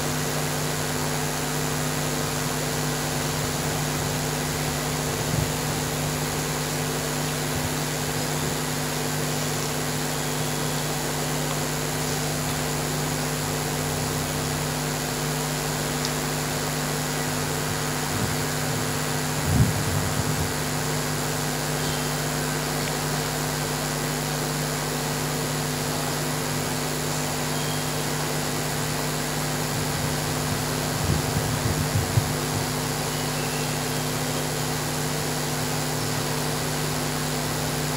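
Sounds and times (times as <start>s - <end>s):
microphone hiss and hum: 0.0s - 37.9s.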